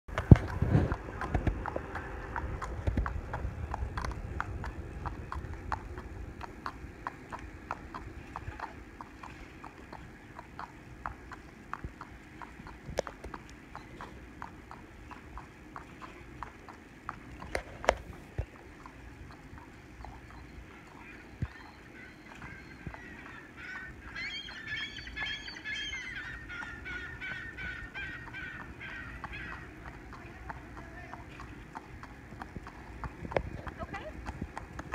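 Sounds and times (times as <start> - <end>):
hooves clip-clopping on asphalt: 0.1 - 25.8, 26.5 - 34.9
birds calling: 18.6 - 32.2.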